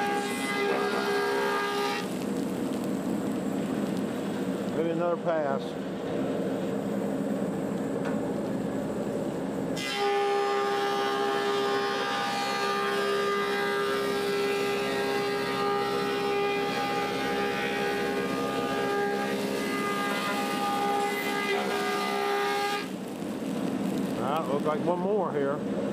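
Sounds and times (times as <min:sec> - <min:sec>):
wood planer cutting: 0:00.0 - 0:02.1, 0:09.8 - 0:22.9.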